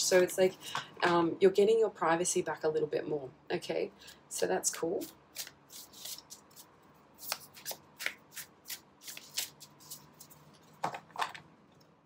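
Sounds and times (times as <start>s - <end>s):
cards being shuffled: 5.0s - 11.2s.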